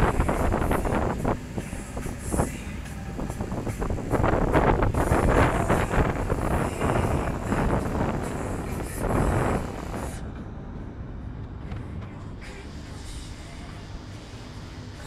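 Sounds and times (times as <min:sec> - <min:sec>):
water rushing along boat hull: 0:00.0 - 0:10.2
wind buffeting microphone: 0:00.0 - 0:10.2.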